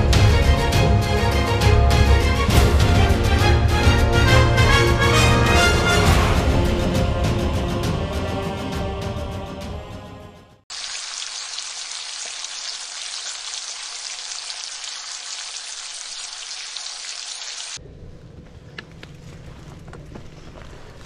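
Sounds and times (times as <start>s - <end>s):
bacon sizzling in a pan: 10.7s - 17.8s
mountain bike rolling on dirt: 17.8s - 21.0s.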